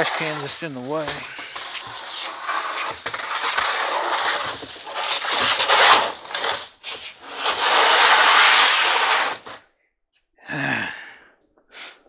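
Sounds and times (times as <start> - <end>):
household objects scraping and dragging: 0.0 - 9.6.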